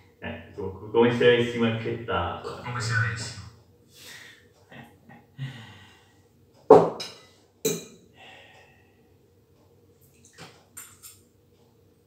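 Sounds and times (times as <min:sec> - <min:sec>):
ceramic bowl knocking on table: 0:06.7 - 0:07.8.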